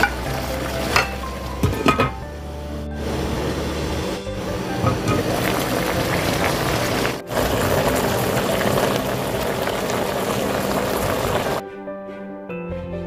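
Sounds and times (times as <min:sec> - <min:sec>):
broth bubbling in a pot: 0:03.0 - 0:11.6.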